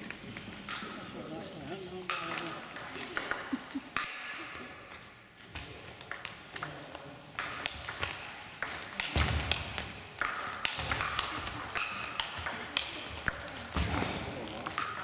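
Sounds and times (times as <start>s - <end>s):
table tennis ball clicking: 2.1s - 4.1s, 7.4s - 13.5s.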